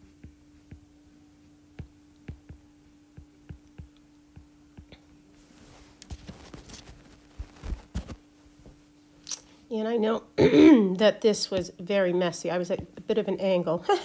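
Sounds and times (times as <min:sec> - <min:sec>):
faint hum: 0:00.0 - 0:14.0
soft rustling: 0:04.8 - 0:09.2.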